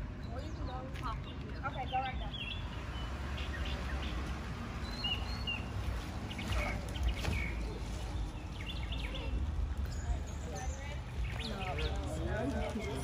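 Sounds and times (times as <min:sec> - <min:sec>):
bird chirps: 0:04.8 - 0:11.9
faint voices: 0:06.3 - 0:13.0.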